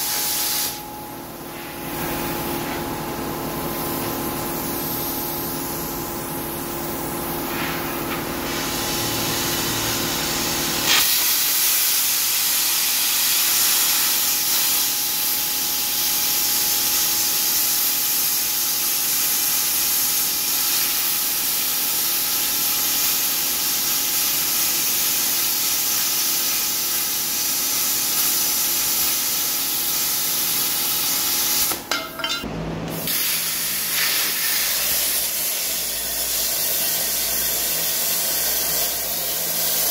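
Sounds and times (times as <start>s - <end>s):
plasma cutter arc hissing: 0.0s - 2.8s, 3.6s - 39.9s
steady hum: 0.0s - 10.8s.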